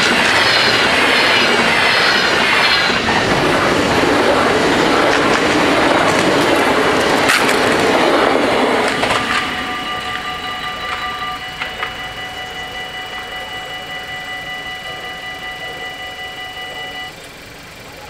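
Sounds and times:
electric train rolling over rails: 0.0s - 18.0s
level crossing warning bells: 0.0s - 18.0s.

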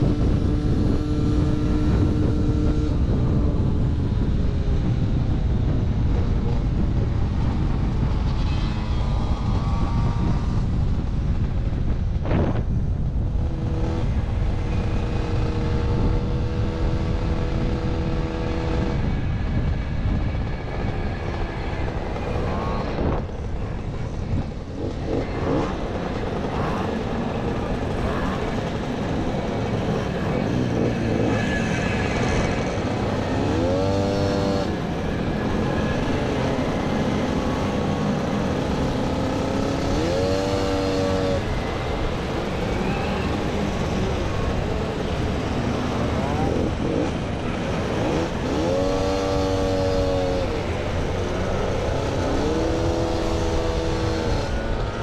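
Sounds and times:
mopeds running at speed: 0.0s - 55.0s
moped engine revving: 24.2s - 55.0s.

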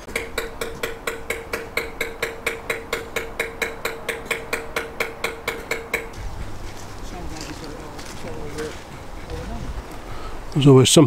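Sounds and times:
hammer blows on metal: 0.0s - 7.0s.

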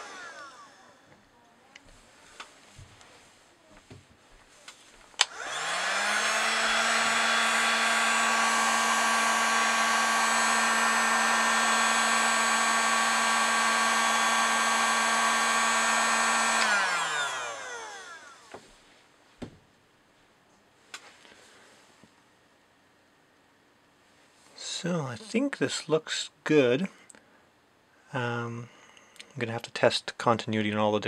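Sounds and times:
heat gun fan whine: 0.0s - 3.1s, 4.6s - 18.8s.

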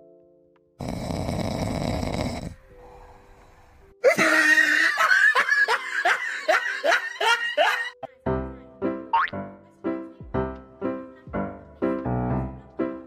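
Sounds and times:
person laughing in bursts: 4.0s - 8.0s.

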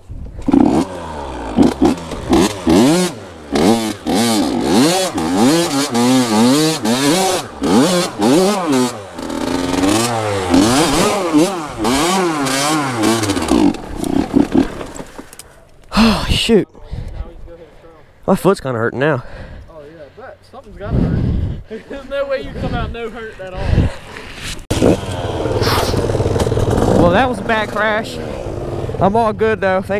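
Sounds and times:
dirt bike engine revving: 0.3s - 15.1s, 24.7s - 29.2s.

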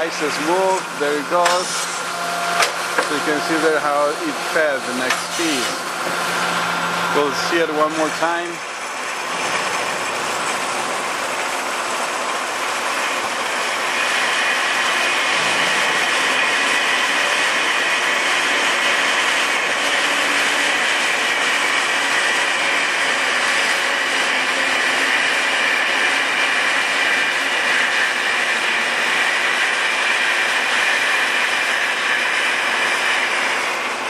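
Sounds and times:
band saw running: 0.0s - 34.0s.

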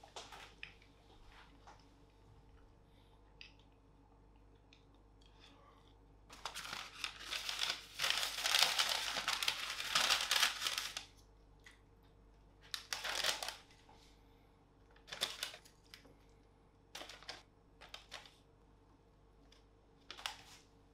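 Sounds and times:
paper bag crinkling: 6.3s - 11.1s, 12.7s - 13.8s, 15.0s - 16.0s, 17.0s - 18.4s.

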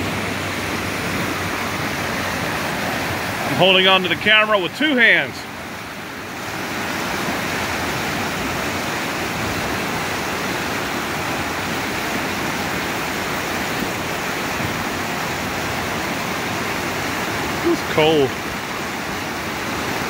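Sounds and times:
river rapids rushing: 0.0s - 20.0s.

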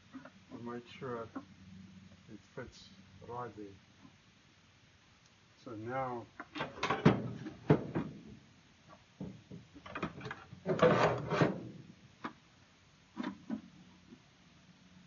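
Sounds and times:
plastic bucket scraping: 9.8s - 11.8s.

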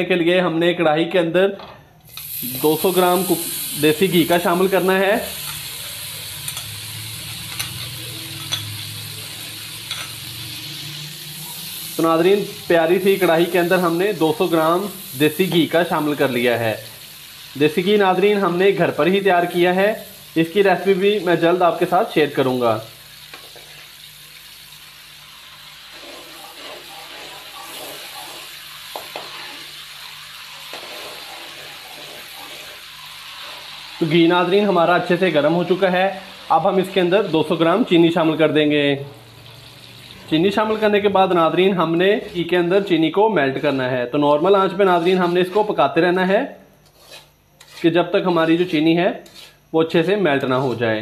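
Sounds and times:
faint sizzle: 2.0s - 51.0s
metal spoon clinking on glass: 7.5s - 8.7s
metal spoon scraping pan: 25.8s - 29.8s, 30.6s - 33.7s, 44.7s - 45.8s, 46.8s - 51.0s.

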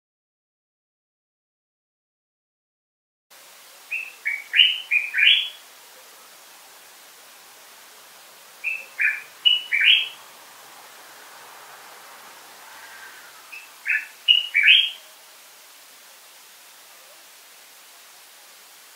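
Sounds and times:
bird singing clear notes: 3.9s - 5.6s, 8.6s - 10.2s, 12.7s - 15.1s.

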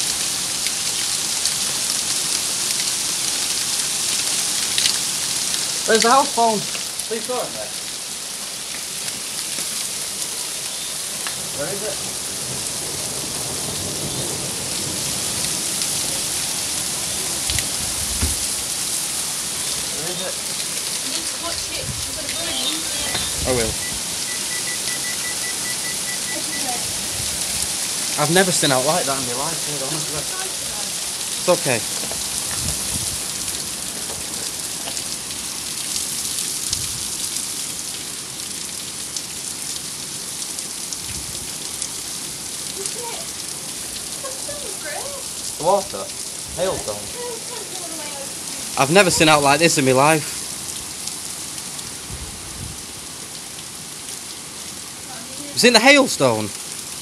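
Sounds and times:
hail ticking on pavement: 0.0s - 52.1s, 52.8s - 57.0s
torrential rain pouring: 0.0s - 57.0s
low thumps: 17.5s - 18.6s.

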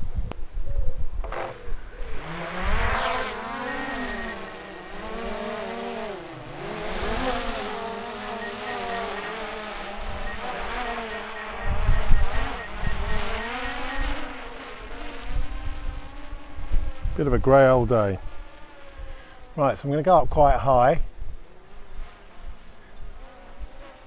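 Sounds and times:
wind rumbling on microphone: 0.0s - 4.2s, 11.4s - 19.5s
drone propellers whining: 1.2s - 17.4s.

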